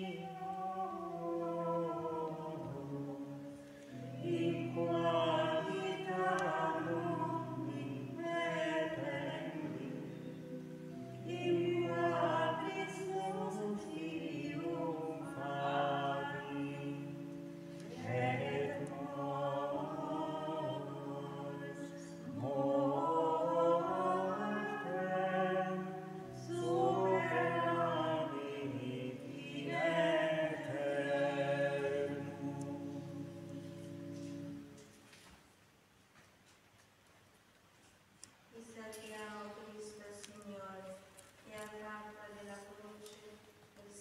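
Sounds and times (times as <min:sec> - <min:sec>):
choir singing a chant: 0:00.0 - 0:10.3, 0:11.2 - 0:33.6.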